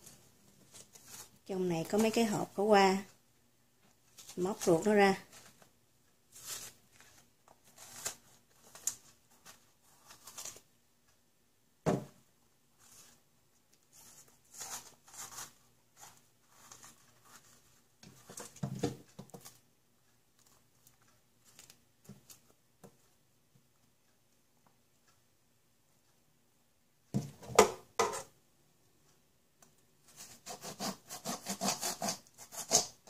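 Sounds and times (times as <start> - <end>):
dull knock: 11.8 - 12.1
fingers scraping wet pith: 30.5 - 33.0.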